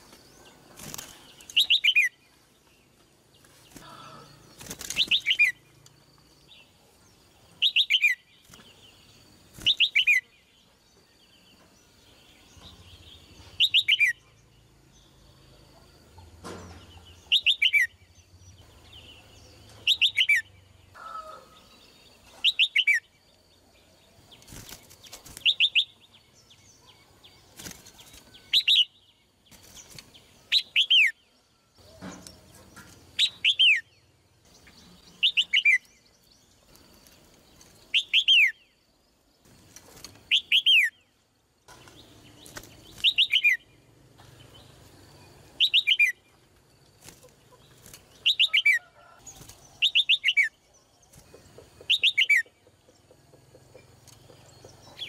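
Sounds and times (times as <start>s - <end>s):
bird calling: 42.8s - 43.8s.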